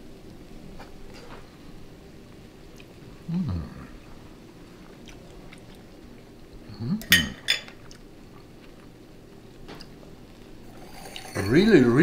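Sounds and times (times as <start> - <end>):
person humming: 3.2 - 4.0
cutlery clinking on tableware: 7.0 - 7.8.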